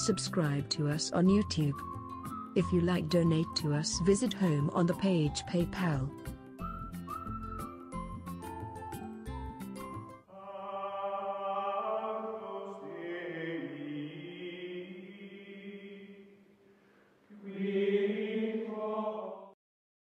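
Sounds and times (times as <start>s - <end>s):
slow chanting voices: 10.3s - 19.6s.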